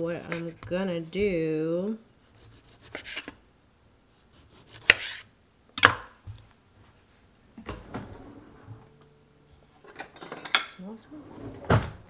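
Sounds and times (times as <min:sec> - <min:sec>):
knife scraping on cutting board: 0:02.4 - 0:03.4, 0:04.3 - 0:05.3.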